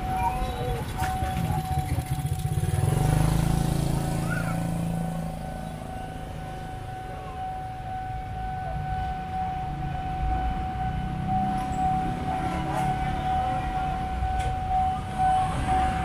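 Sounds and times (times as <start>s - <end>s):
motorcycle engine passing by: 0.2s - 6.5s.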